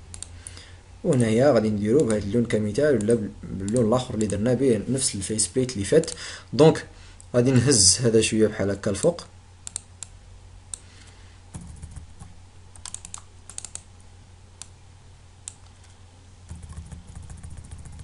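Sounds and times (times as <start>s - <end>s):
low steady hum: 0.0s - 18.0s
mouse and keyboard clicks: 9.6s - 10.1s, 12.8s - 13.9s, 15.5s - 18.0s.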